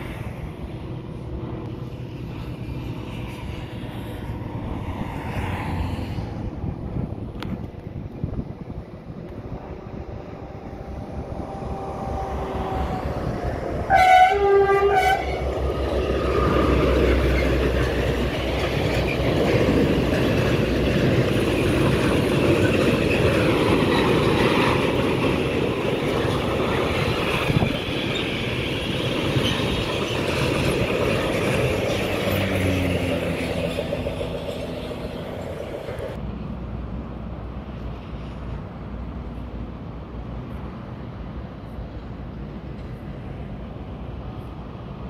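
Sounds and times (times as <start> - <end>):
train wheels rumbling on rails: 0.0 - 45.0
train horn blast: 10.4 - 13.1, 13.8 - 15.6.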